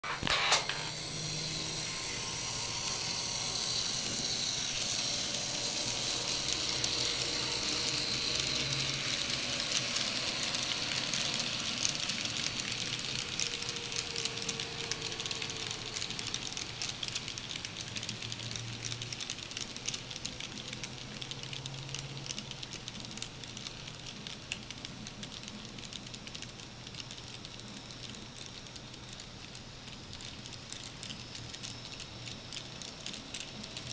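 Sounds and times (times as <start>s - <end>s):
wheels clicking over rails: 0.0s - 25.6s
model train motors whirring: 0.0s - 25.9s.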